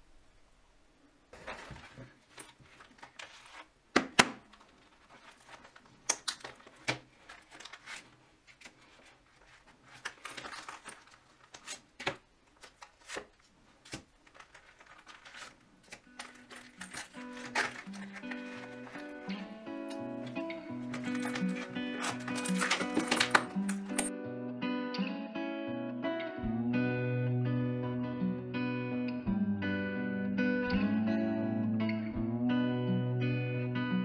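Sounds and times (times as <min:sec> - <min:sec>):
leather and paper rustling: 0:01.4 - 0:03.8, 0:04.5 - 0:24.1.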